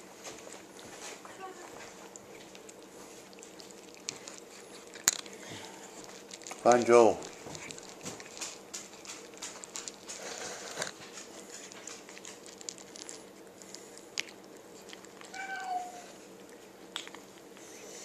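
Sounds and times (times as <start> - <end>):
animals crunching dry food: 0.0 - 18.0
cat mewing: 15.3 - 16.2.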